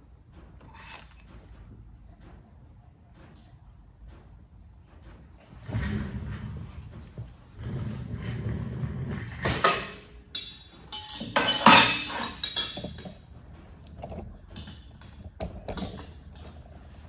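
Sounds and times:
metal clinks and knocks: 8.2s - 17.0s.

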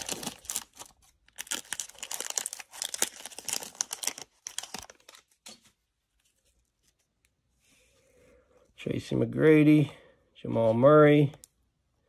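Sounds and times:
plastic wrapper crinkling: 0.0s - 7.0s.

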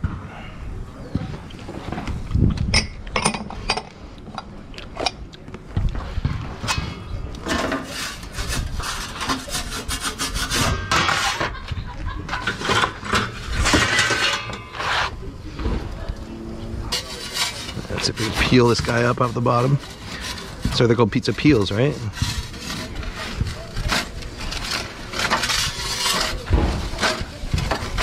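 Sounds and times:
metal peel scraping on stone: 6.7s - 11.6s, 12.3s - 15.2s, 16.8s - 28.0s.

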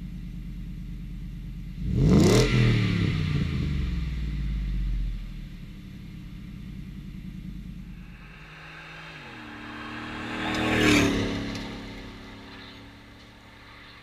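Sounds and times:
truck engine revving: 7.8s - 14.0s.

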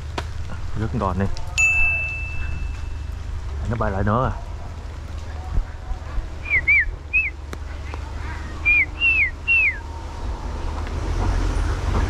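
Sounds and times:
pigeon whistled calls: 6.4s - 7.4s, 8.4s - 9.8s.

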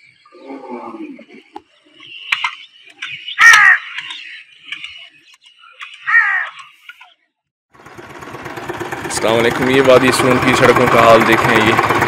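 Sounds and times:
background chirping: 0.0s - 7.5s
crows cawing: 3.2s - 4.4s, 5.8s - 6.8s.

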